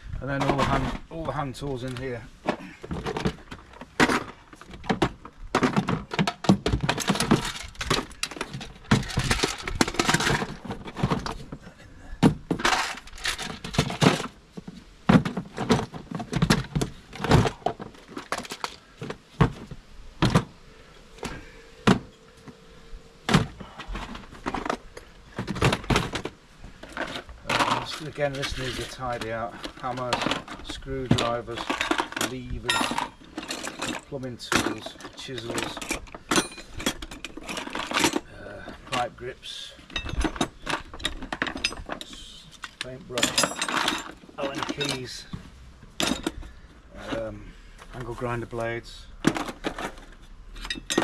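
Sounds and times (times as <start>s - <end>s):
metal hand tools clanking: 26.8s - 45.3s.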